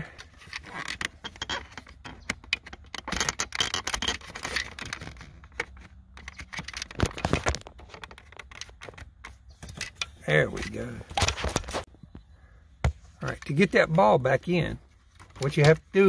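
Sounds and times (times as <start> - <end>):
plastic clicks and scrapes: 0.1 - 11.9.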